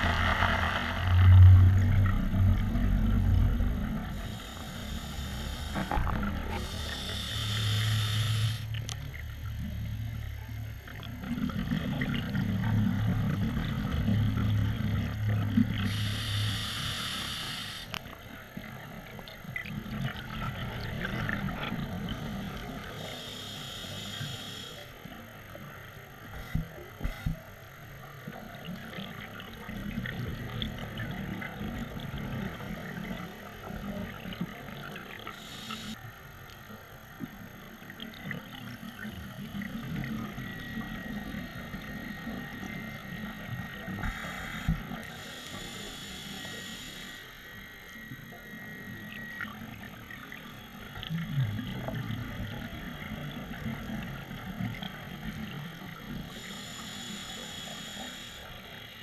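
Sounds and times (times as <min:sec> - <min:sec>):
scuba regulator breathing underwater: 0:04.0 - 0:08.7, 0:15.8 - 0:18.0, 0:22.9 - 0:24.8, 0:35.3 - 0:36.0, 0:44.0 - 0:47.3.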